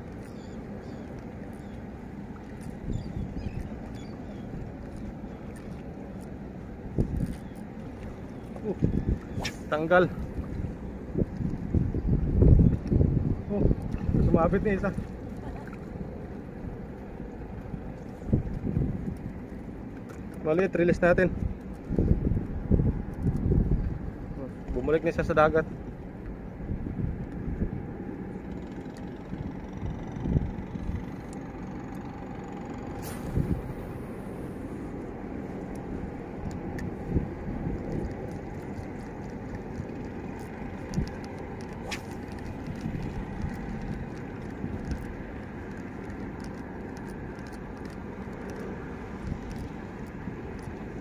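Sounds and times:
wind buffeting microphone: 0:00.0 - 0:19.8, 0:20.8 - 0:51.0.

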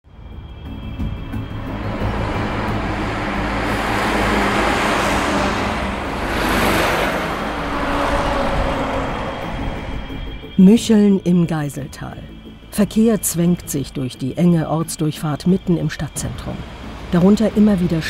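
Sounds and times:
low engine rumble: 0:00.2 - 0:11.4
tanker truck passing by: 0:00.2 - 0:14.0.

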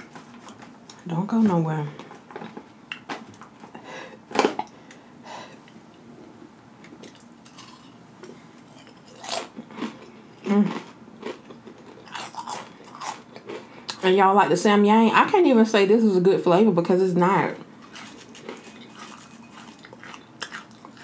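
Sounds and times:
crunching tortilla chips: 0:07.1 - 0:08.0, 0:08.7 - 0:14.0, 0:17.8 - 0:21.0.

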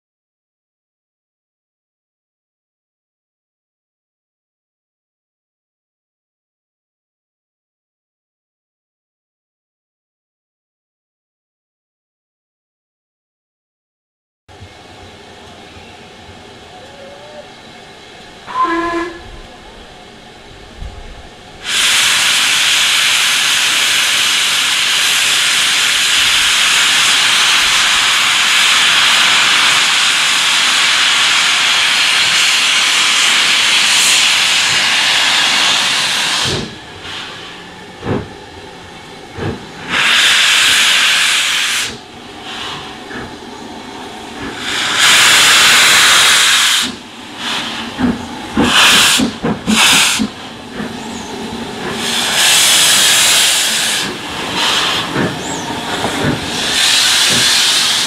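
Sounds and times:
steam locomotive hissing: 0:15.1 - 0:58.0
short steam blasts: 0:21.6 - 0:58.0.

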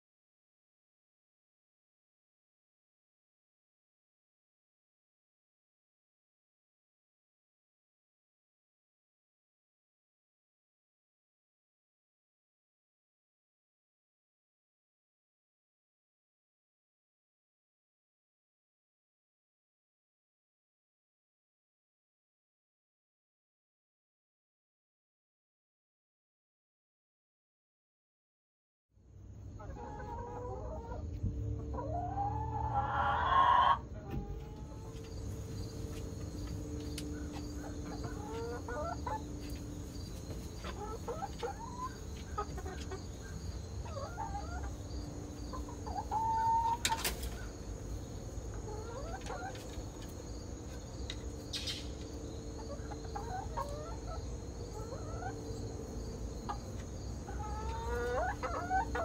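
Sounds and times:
hens clucking: 0:29.6 - 0:59.0.

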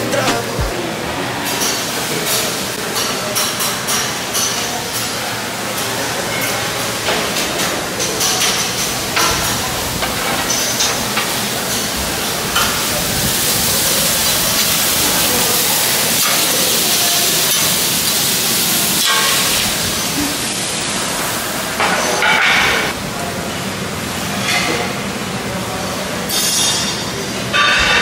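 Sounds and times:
indistinct voices: 0:00.0 - 0:26.3
dishes and utensils clattering: 0:01.5 - 0:13.2, 0:21.8 - 0:23.0, 0:26.3 - 0:28.0
vegetables sizzling on a griddle: 0:08.7 - 0:22.3.

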